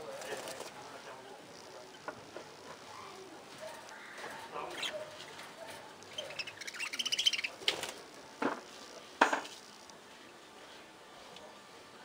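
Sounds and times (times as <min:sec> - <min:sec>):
budgerigars chattering: 0:06.0 - 0:07.6.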